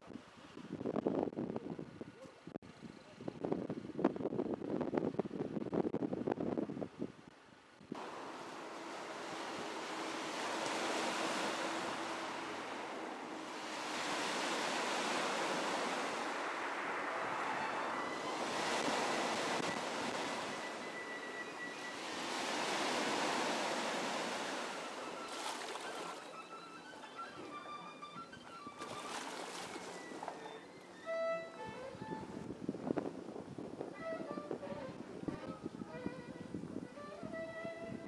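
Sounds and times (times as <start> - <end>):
waves breaking on pebble beach: 8.0 - 26.2, 28.8 - 30.3.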